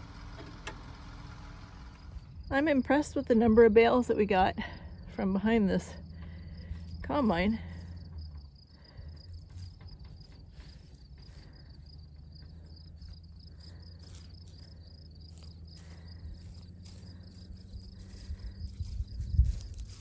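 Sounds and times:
low steady hum: 0:00.0 - 0:20.0
soft bumps: 0:06.0 - 0:20.0
insects trilling: 0:07.7 - 0:20.0.

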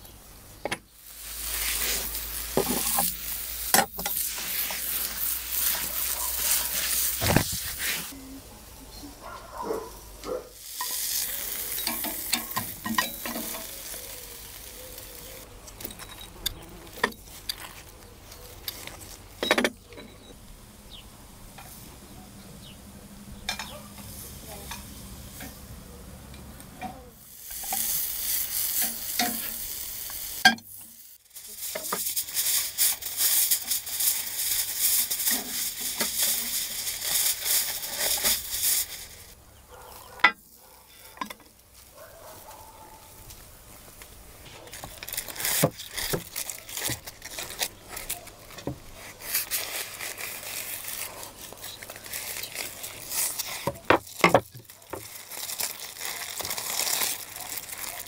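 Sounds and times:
food sizzling: 0:00.9 - 0:08.4, 0:09.9 - 0:15.5, 0:26.9 - 0:39.4, 0:43.1 - 0:58.0
aluminium foil crinkling: 0:01.0 - 0:08.3, 0:09.2 - 0:19.4, 0:27.2 - 0:58.0.

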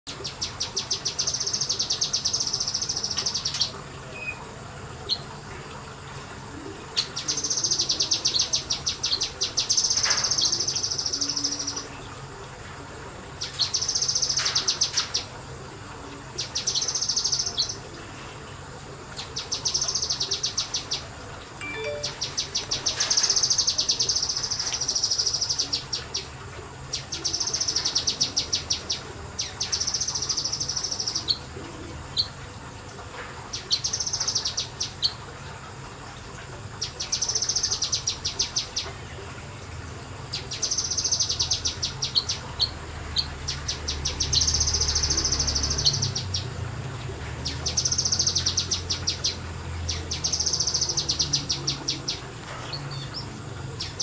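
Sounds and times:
songbird chattering: 0:47.5 - 0:54.0.

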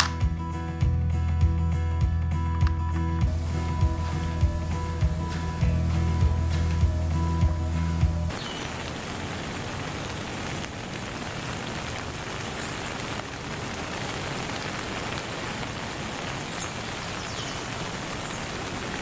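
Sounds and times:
rain-like hiss: 0:03.3 - 0:19.0.

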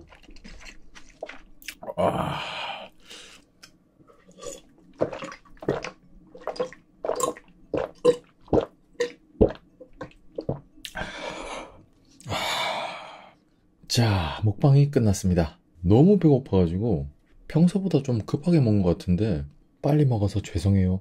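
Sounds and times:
person gulping water: 0:00.0 - 0:02.9, 0:04.1 - 0:11.1
breathy exhales: 0:01.9 - 0:03.5, 0:10.9 - 0:13.4.

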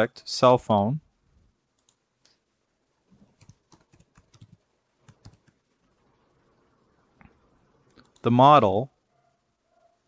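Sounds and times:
faint keyboard typing: 0:01.7 - 0:02.5, 0:03.1 - 0:06.2, 0:07.2 - 0:08.4.

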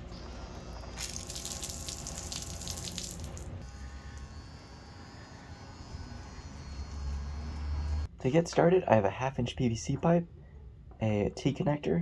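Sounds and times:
water splashing from faucet: 0:01.0 - 0:03.6.

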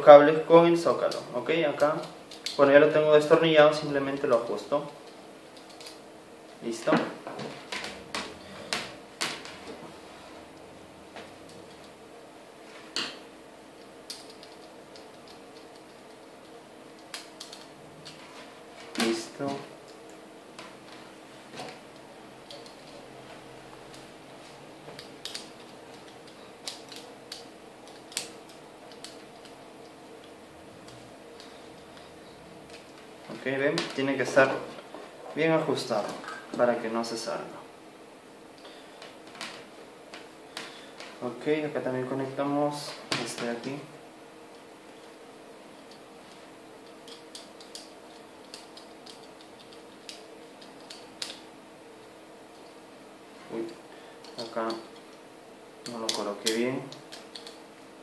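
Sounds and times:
faint steady hum: 0:00.0 - 0:58.0
screwdriver clicks and ticks: 0:25.0 - 0:29.5, 0:55.8 - 0:57.6.

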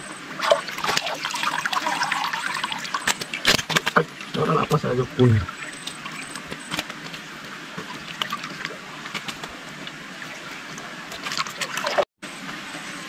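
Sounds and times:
water drips and splashes: 0:00.4 - 0:03.6, 0:05.4 - 0:12.1.

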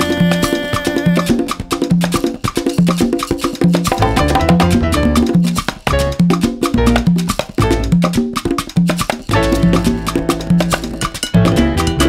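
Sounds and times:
salsa dance music: 0:03.7 - 0:12.0.

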